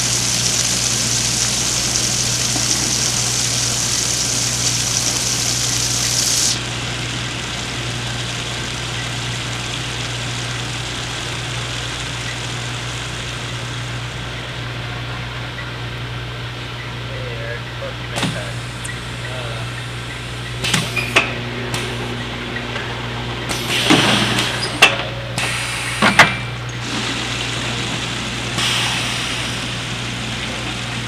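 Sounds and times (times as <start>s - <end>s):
hiss of liquid filling jugs: 0.0s - 6.8s, 20.5s - 22.2s, 23.4s - 31.0s
low pump hum: 0.0s - 31.0s.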